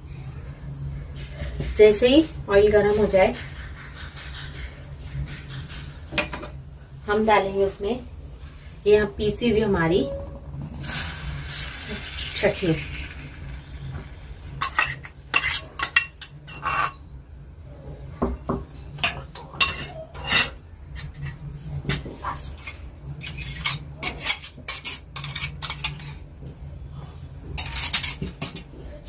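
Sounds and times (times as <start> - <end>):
low steady hum: 0.0 - 29.0
metal spoon scraping metal pot: 14.6 - 17.0, 19.6 - 22.0, 22.6 - 26.2.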